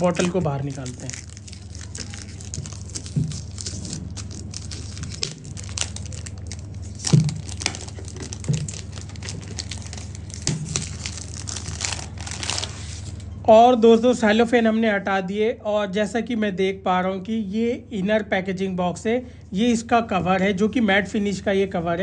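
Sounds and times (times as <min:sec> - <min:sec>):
cellophane crinkling and tearing: 0:00.0 - 0:13.3.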